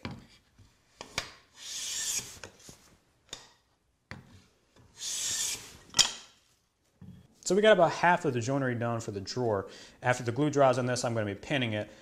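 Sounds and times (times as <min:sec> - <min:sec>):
plane swishing across wood: 0:01.6 - 0:02.8, 0:04.9 - 0:05.9.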